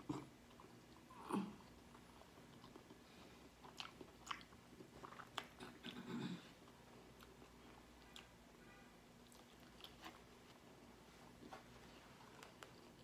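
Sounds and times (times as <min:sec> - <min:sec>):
person chewing with mouth smacks: 0:00.0 - 0:08.4, 0:09.2 - 0:10.6.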